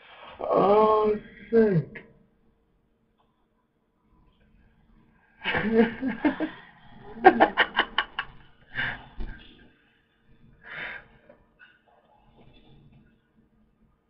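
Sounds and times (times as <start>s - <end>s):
man laughing: 5.4s - 9.1s.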